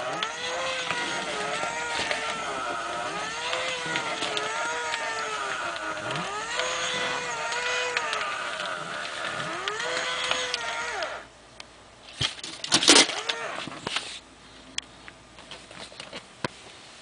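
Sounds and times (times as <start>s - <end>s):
robotic toy whining: 0.0s - 11.3s, 12.9s - 13.7s
clicks: 0.0s - 11.7s.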